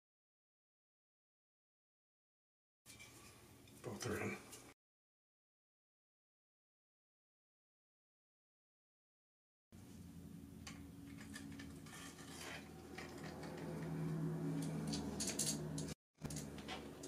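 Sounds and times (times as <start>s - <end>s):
steady low hum: 9.8s - 17.0s.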